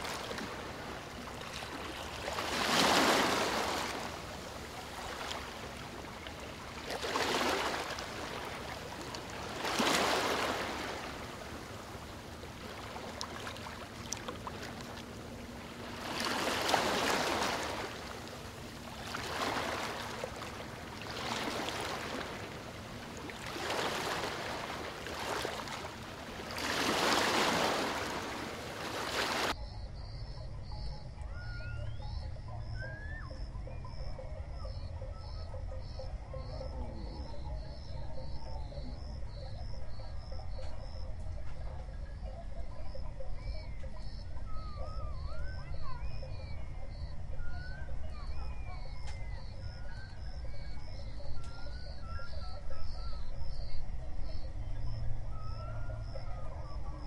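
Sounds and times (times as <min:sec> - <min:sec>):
water sloshing and splashing: 0:00.0 - 0:29.6.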